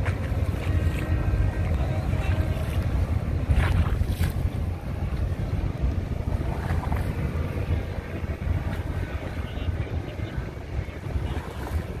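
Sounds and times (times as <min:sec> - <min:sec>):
water splashing against seawall: 0:00.0 - 0:12.0
wind buffeting microphone: 0:00.0 - 0:12.0.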